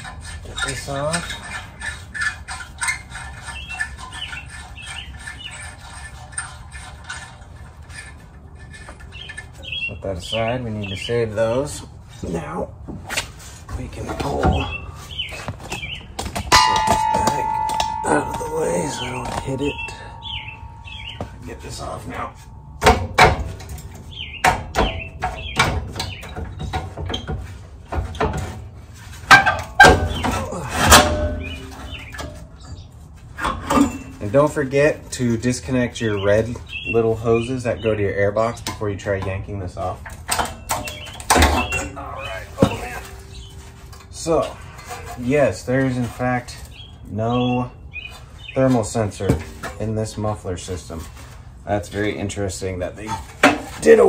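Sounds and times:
birds chirping: 3.1 - 6.0, 8.7 - 11.7, 13.8 - 27.2, 30.0 - 30.7, 31.3 - 33.2, 35.4 - 39.9, 40.5 - 51.0
low steady hum: 16.3 - 35.8.

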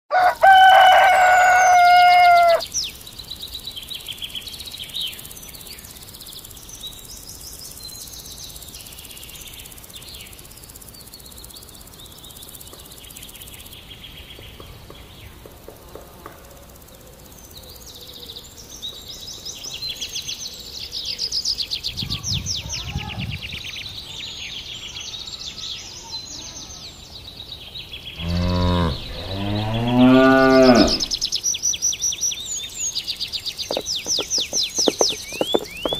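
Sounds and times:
rooster crowing: 0.1 - 2.6
small birds chirping: 0.7 - 35.9
cow mooing: 28.2 - 31.1.

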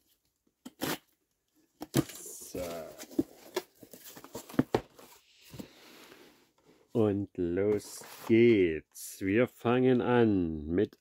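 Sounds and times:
cardboard rustling: 1.8 - 6.7, 7.7 - 8.6.

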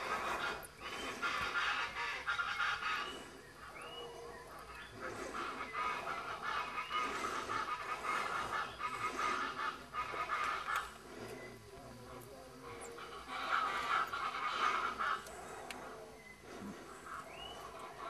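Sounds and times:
macaw squawking: 0.0 - 4.0, 4.7 - 10.9, 12.8 - 15.6.

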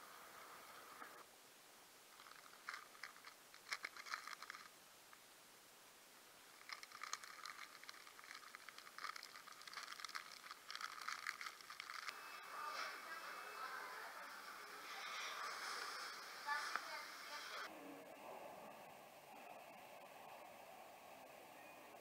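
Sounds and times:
plastic snack packet crinkling: 2.2 - 4.7, 6.6 - 12.2.

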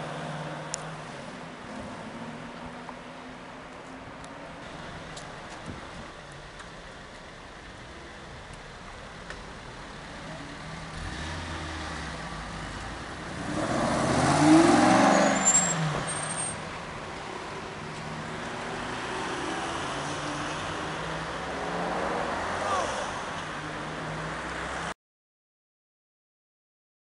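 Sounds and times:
street traffic: 0.0 - 25.0
sports car accelerating: 9.6 - 16.3, 17.2 - 24.9.

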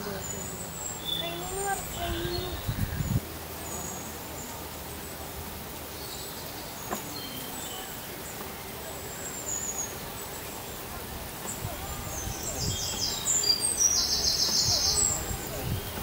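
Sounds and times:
bird chirps: 0.0 - 4.1, 11.4 - 16.0
background hiss: 0.0 - 16.0.

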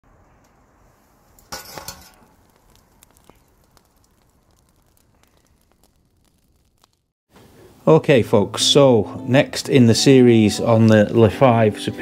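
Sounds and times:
faint fire hiss: 0.1 - 11.2
wood fire crackling and popping: 0.2 - 8.8.

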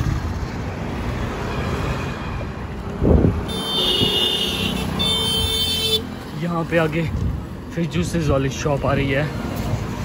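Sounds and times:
road traffic passing: 0.0 - 10.0
vehicle horn honk: 3.5 - 6.0.

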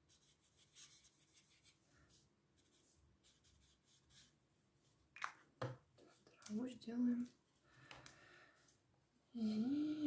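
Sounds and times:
marker scratching on paper: 0.1 - 1.8, 2.6 - 4.4.

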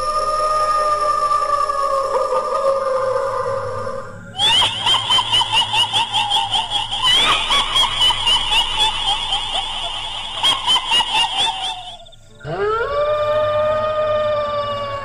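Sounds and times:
shrill warbling laugh: 0.0 - 15.0.

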